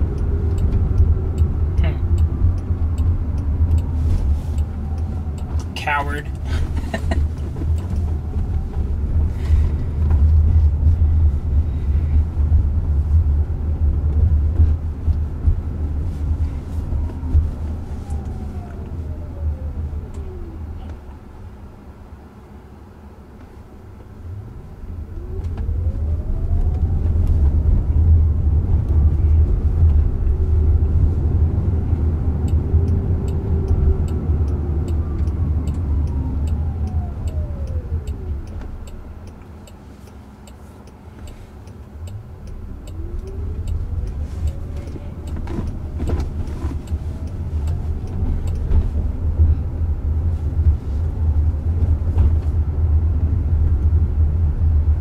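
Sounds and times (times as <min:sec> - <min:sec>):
low road rumble: 0:00.0 - 0:55.0.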